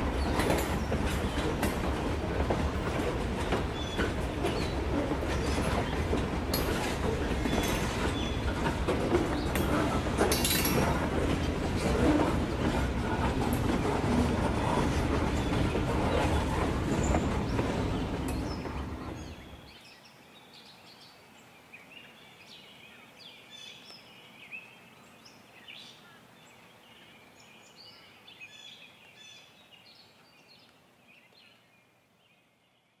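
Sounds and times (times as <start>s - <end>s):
train rumble: 0.0s - 19.7s
birds chirping: 0.0s - 33.0s.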